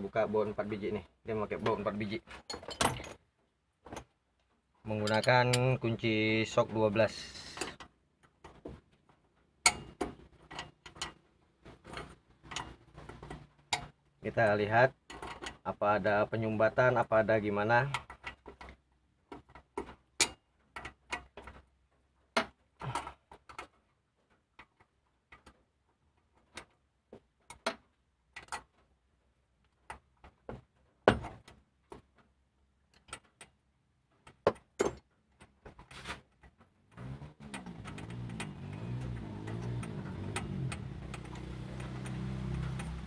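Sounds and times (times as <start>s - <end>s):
socket wrench clinking: 2.5s - 3.2s, 5.0s - 5.8s, 9.6s - 11.2s.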